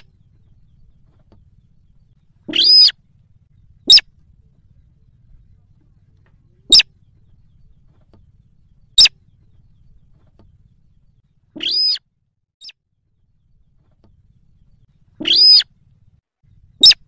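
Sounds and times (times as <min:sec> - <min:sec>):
bird call notes: 0:00.0 - 0:04.2, 0:11.5 - 0:12.0, 0:15.1 - 0:15.7, 0:16.7 - 0:17.0
short sharp bird notes: 0:02.4 - 0:03.0, 0:11.5 - 0:12.0, 0:15.1 - 0:15.7, 0:16.7 - 0:17.0.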